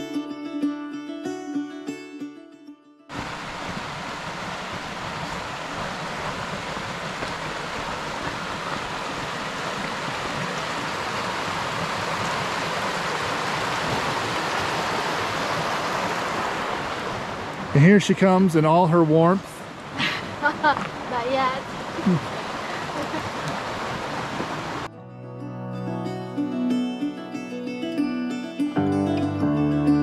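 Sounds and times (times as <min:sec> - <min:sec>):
creek rushing over stones: 0:03.1 - 0:24.9.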